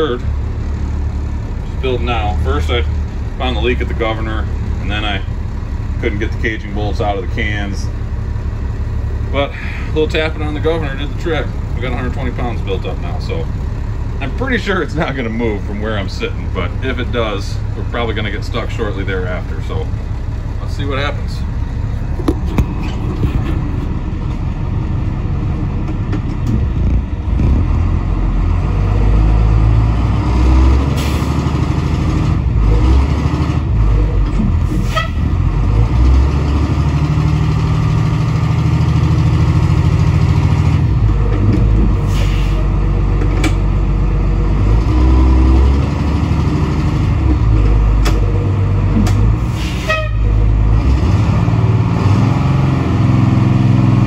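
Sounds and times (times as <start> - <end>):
diesel engine revving: 0.0 - 54.0
sharp clicks and knocks: 22.2 - 24.4, 25.8 - 27.5, 43.2 - 43.7, 47.2 - 49.3.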